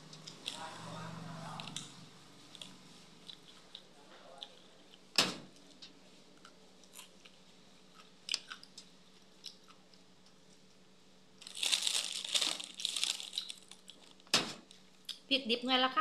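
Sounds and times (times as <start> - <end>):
person chewing: 6.4 - 10.7, 11.4 - 14.2
loud crunching: 11.4 - 14.1.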